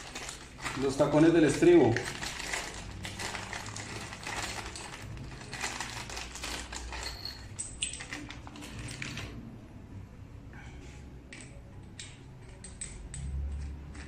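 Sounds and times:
plastic bag crinkling: 0:00.0 - 0:09.4.

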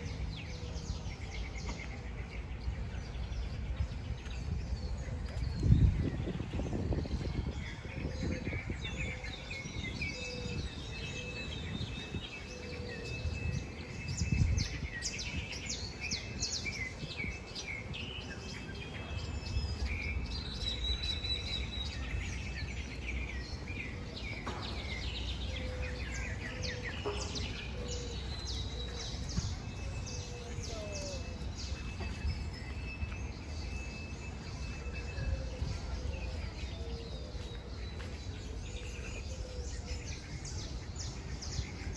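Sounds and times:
low rumble of city traffic: 0:00.0 - 0:41.9
small birds chirping: 0:14.3 - 0:35.2.

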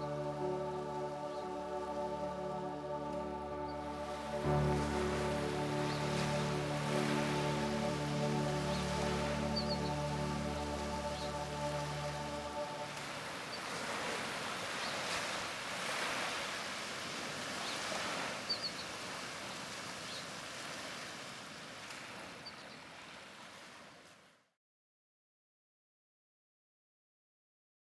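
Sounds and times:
waves breaking on beach: 0:00.0 - 0:24.4.

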